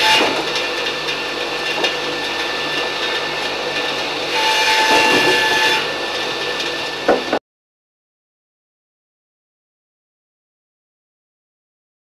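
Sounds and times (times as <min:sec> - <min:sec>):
sawmill machinery humming: 0:00.0 - 0:07.4
knock: 0:07.1 - 0:07.4.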